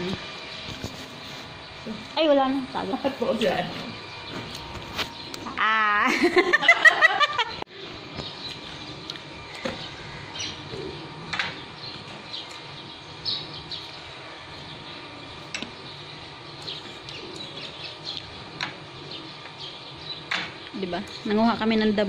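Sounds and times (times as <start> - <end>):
bird chirping: 7.7 - 21.6.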